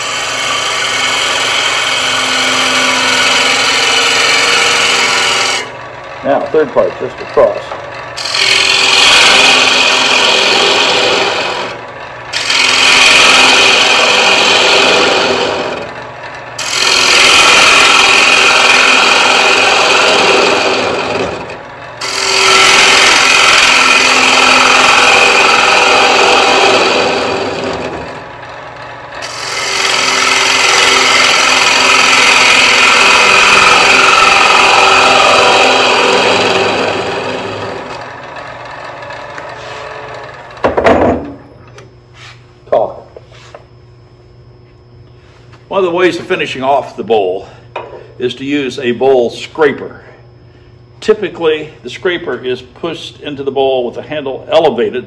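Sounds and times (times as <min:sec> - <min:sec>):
gouge shearing wood on lathe: 0:00.0 - 0:41.4.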